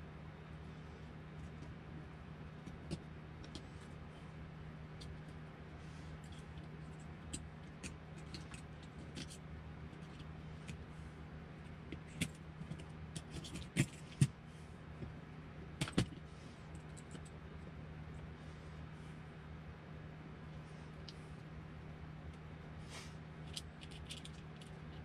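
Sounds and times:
steady low hum: 0:00.0 - 0:25.0
small clicks of parts handled: 0:23.4 - 0:25.0.

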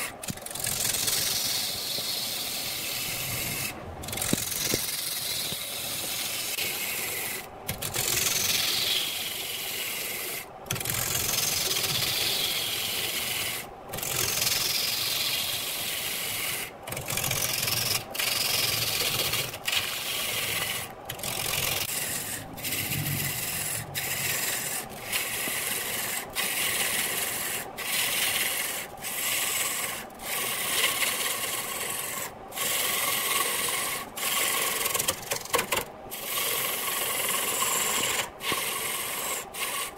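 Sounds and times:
lathe gouge scraping wood: 0:00.0 - 0:39.9.

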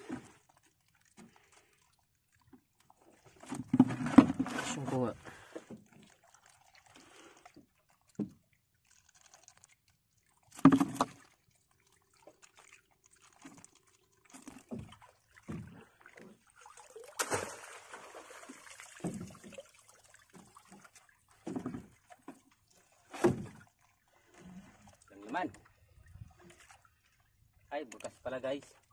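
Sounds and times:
water splashing and dripping: 0:00.0 - 0:28.9
rush of water: 0:16.6 - 0:20.8.

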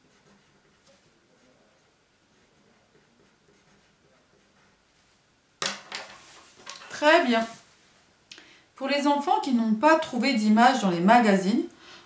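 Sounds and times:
pencil scratching on paper: 0:00.0 - 0:04.8
pencil knocking on table: 0:05.6 - 0:07.0.

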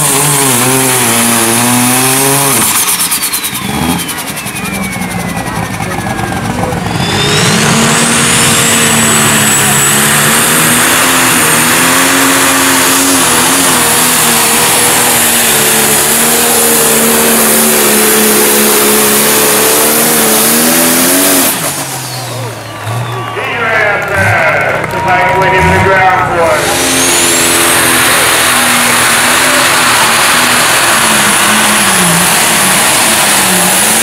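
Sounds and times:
diesel engine at full throttle: 0:00.0 - 0:34.0
turbo whistle: 0:02.6 - 0:05.8, 0:06.8 - 0:09.8.

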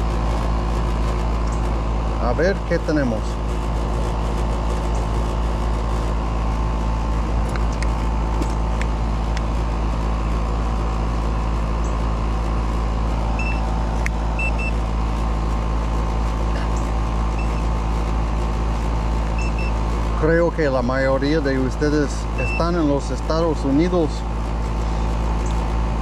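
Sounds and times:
air conditioner unit humming: 0:00.0 - 0:26.0.

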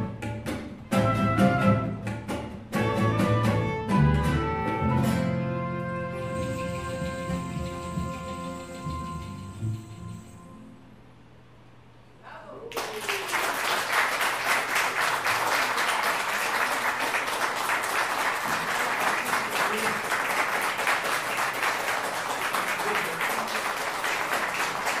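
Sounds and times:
audience applauding: 0:12.7 - 0:25.0.

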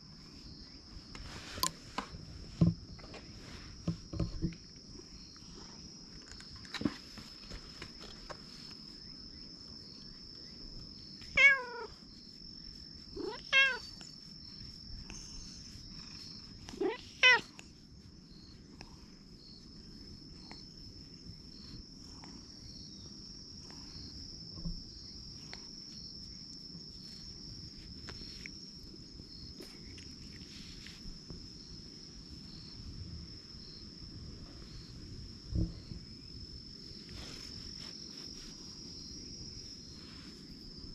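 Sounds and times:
high insect drone: 0:00.0 - 0:40.9
cat meowing: 0:11.3 - 0:12.0, 0:13.2 - 0:14.0, 0:16.7 - 0:17.5.

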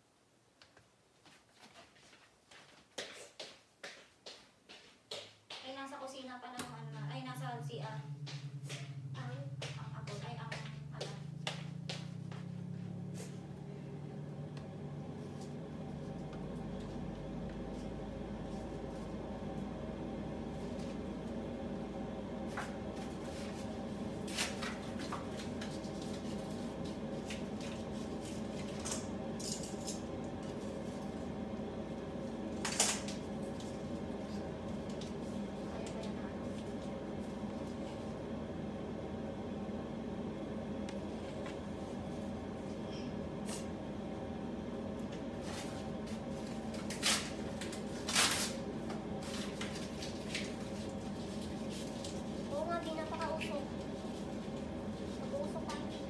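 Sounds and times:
exhaust fan hum: 0:04.7 - 0:56.0.

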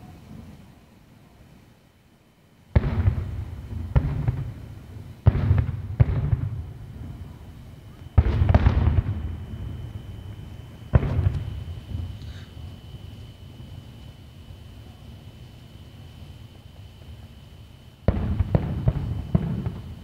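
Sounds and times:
fireworks bangs with echo: 0:02.7 - 0:12.7, 0:18.0 - 0:20.0.

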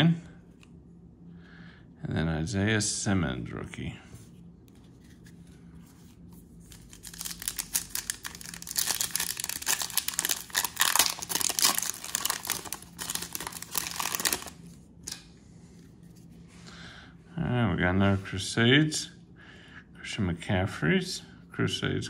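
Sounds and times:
foil card pack tearing: 0:06.6 - 0:15.2
wrapper crinkling: 0:06.6 - 0:15.2.

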